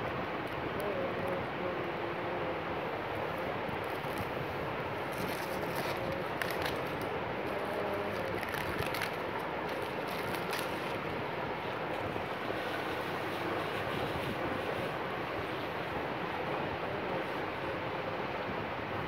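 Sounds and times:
plastic wrap crinkling: 3.8 - 12.0.

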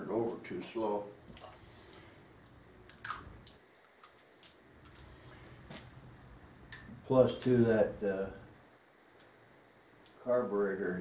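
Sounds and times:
hand tool clinking on metal: 1.4 - 1.8.

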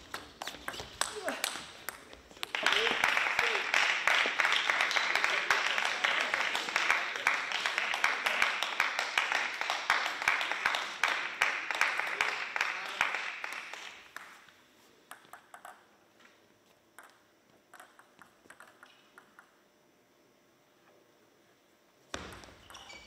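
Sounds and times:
people clapping: 0.0 - 14.5
table tennis ball bouncing: 15.1 - 15.9, 17.0 - 19.6, 22.1 - 23.0.

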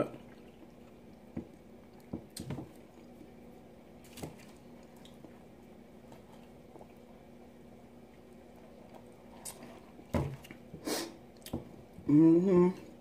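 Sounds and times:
steady low hum: 0.0 - 13.0
person chewing: 8.0 - 12.0.

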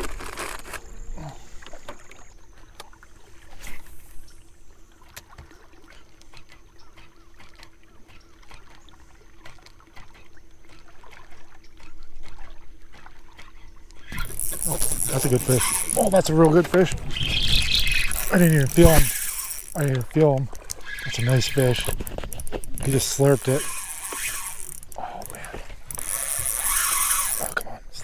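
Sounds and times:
fishing gear clicks and knocks: 0.0 - 1.0, 5.1 - 27.7
water lapping against hull: 0.0 - 28.0
electric motor hum: 14.0 - 27.6.

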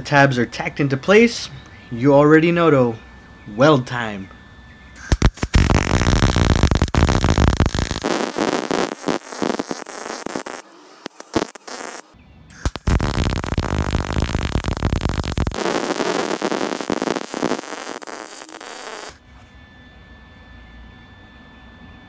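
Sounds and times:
faint steady hum: 0.0 - 22.0
arc welding crackling hiss: 5.0 - 19.2.

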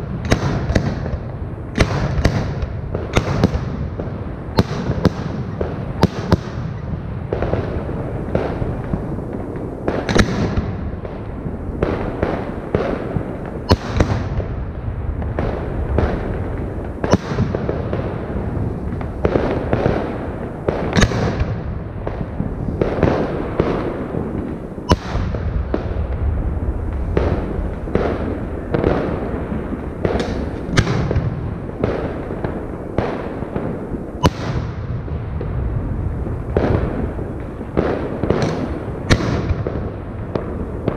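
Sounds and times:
continuous low rumble: 0.0 - 40.9
firework shells bursting: 26.9 - 35.0.

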